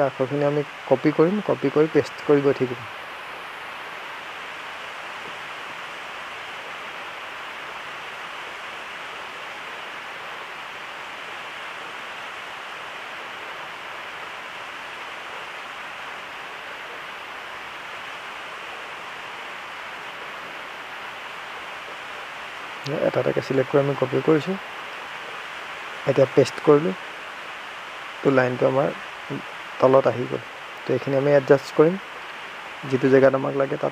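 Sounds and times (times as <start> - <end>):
background hiss: 0.0 - 33.9.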